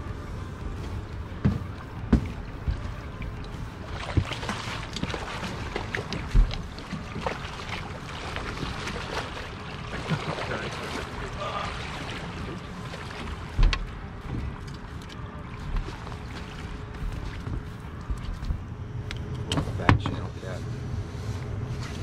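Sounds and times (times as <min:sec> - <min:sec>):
rushing water: 0:00.0 - 0:18.6
wind: 0:00.0 - 0:22.0
fish splashing at the surface: 0:03.8 - 0:13.6.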